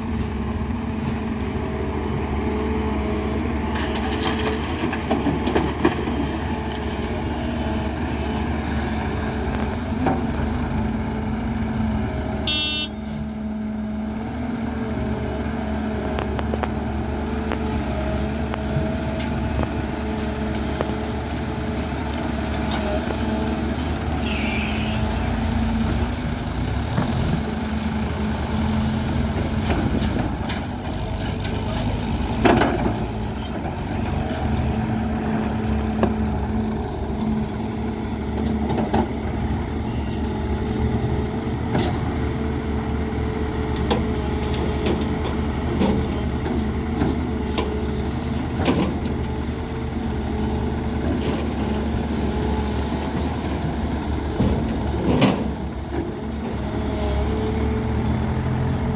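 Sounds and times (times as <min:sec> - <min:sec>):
diesel engines running: 0:00.0 - 0:58.9
excavator digging soil: 0:00.0 - 0:58.9
clunks and knocks: 0:03.7 - 0:07.0, 0:29.3 - 0:34.6, 0:54.2 - 0:56.2.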